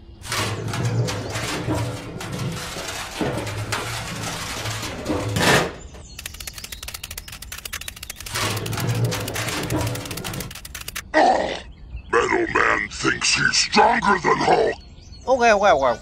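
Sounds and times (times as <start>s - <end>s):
fast run of clicks: 2.4s - 11.0s.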